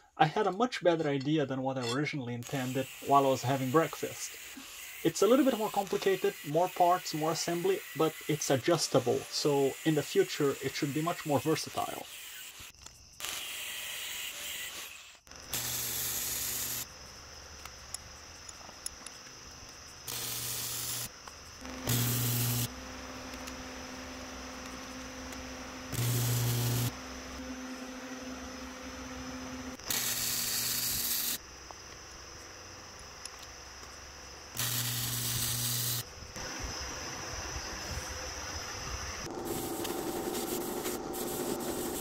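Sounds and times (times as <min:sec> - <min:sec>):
angle grinder cutting steel: 0:01.8 - 0:16.9, 0:20.1 - 0:31.4, 0:34.6 - 0:36.6, 0:39.2 - 0:42.0
power tool hissing bursts: 0:02.4 - 0:16.9, 0:20.1 - 0:27.6, 0:29.1 - 0:31.4, 0:34.5 - 0:36.9, 0:39.2 - 0:42.0
steady background hum: 0:17.0 - 0:35.4.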